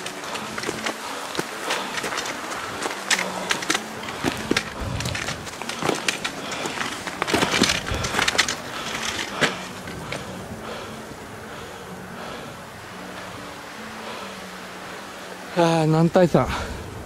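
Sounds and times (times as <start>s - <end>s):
footsteps crunching on dry leaves: 0.0s - 10.2s.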